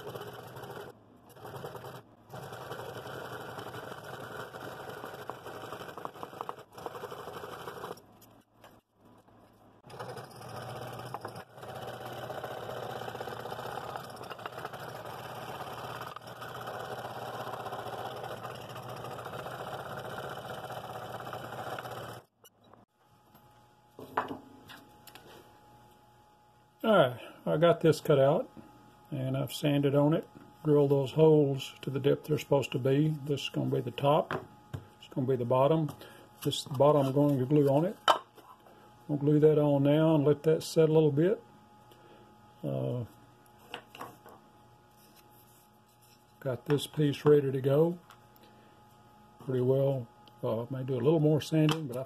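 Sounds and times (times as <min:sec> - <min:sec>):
scroll saw cutting wood: 0:00.0 - 0:08.0, 0:09.9 - 0:22.3.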